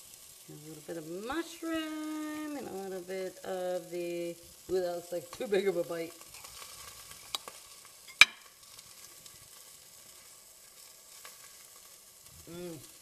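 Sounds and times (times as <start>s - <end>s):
faint steady hiss: 0.0s - 13.0s
fork clinking on plate: 8.1s - 8.4s.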